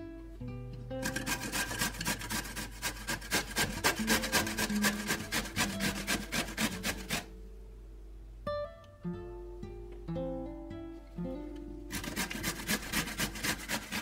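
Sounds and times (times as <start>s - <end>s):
vegetable grating on metal grater: 1.0s - 7.3s, 11.9s - 14.0s.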